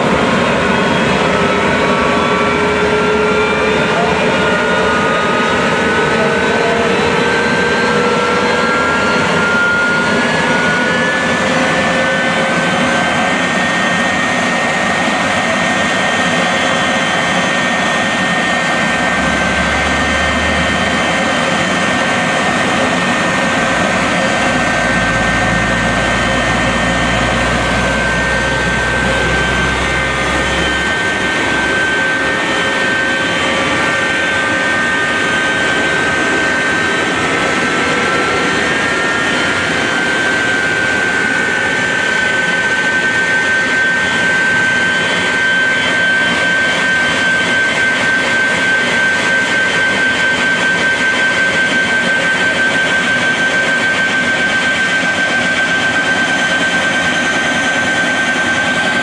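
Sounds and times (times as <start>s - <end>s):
jet engines rushing with whine: 0.0s - 59.0s
second whine rising in pitch: 0.0s - 59.0s.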